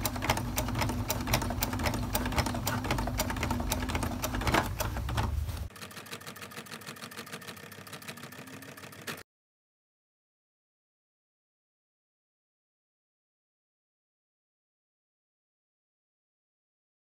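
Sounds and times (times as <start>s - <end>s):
sewing machine stitching: 0.0s - 9.2s.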